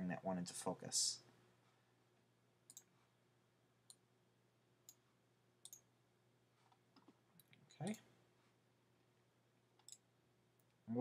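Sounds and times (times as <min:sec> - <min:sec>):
faint computer mouse clicks: 0:02.7 - 0:02.9.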